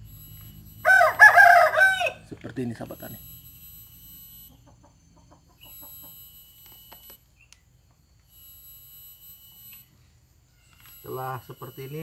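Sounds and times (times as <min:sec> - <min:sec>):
high whine of thin tones: 0:00.0 - 0:12.0
chickens clucking: 0:04.5 - 0:06.2.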